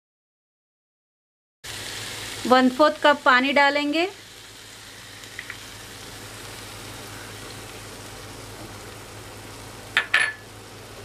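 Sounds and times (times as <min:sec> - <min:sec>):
pan sizzling and bubbling: 0:01.6 - 0:11.0
utensil clink: 0:10.0 - 0:10.4.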